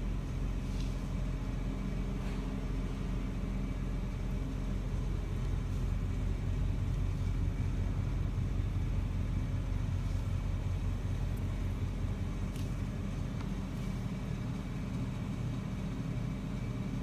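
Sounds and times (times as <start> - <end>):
low rumble with hum: 0.0 - 17.0.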